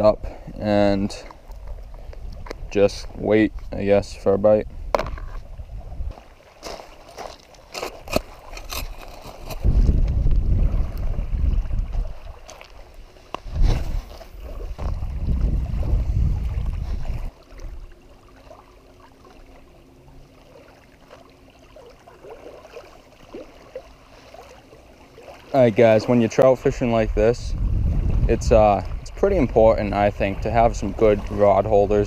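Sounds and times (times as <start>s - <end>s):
wind buffeting microphone: 1.5s - 6.2s, 9.4s - 12.4s, 13.3s - 17.9s, 26.5s - 32.0s.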